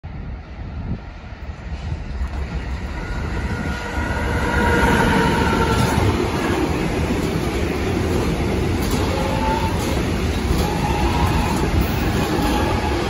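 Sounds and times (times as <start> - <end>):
electric locomotive passing: 0.1 - 13.0
wagon wheels rumbling and clattering: 5.7 - 13.0.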